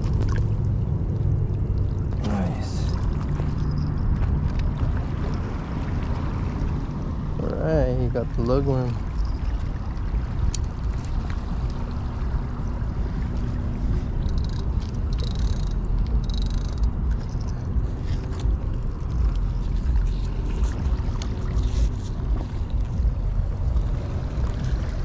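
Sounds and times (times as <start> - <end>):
wind rumble on microphone: 0.0 - 25.0
clicks and rustles of handling fish: 13.9 - 23.1.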